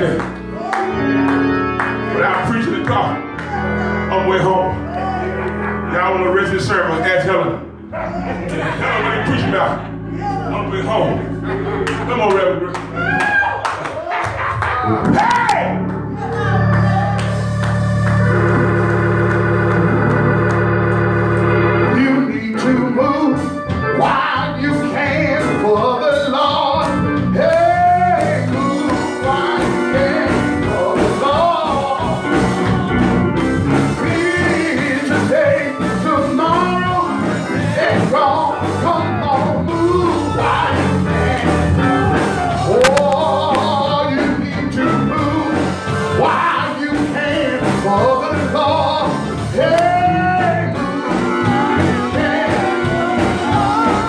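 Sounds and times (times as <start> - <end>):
church organ chord: 0.0 - 12.8, 15.8 - 26.1
man singing gospel song: 0.0 - 13.0, 21.7 - 54.0.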